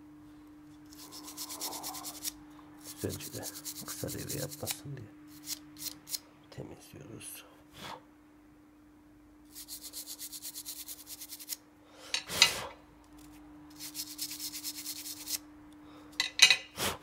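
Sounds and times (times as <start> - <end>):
faint steady hum: 0.0 - 17.0
brush scrubbing circuit board: 0.9 - 4.8, 9.5 - 11.6, 13.7 - 15.4.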